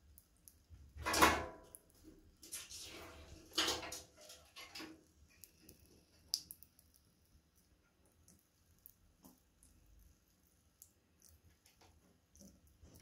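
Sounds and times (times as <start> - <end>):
rustles and knocks around a sink: 0.0 - 6.4, 10.9 - 13.0.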